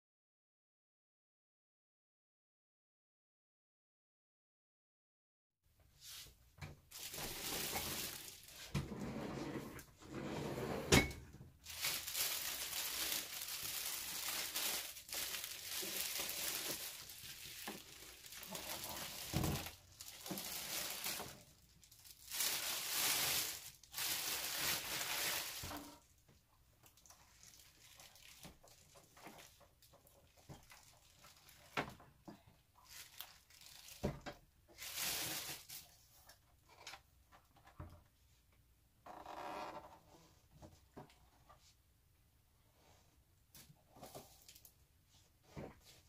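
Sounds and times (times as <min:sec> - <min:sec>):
plastic bag crinkling: 0:06.9 - 0:08.8, 0:11.6 - 0:26.0, 0:26.8 - 0:31.8, 0:32.8 - 0:36.1.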